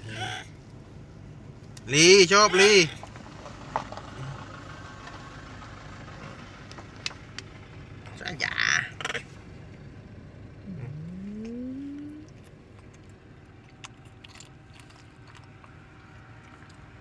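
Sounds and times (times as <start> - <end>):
short rising hum: 10.5 - 12.4.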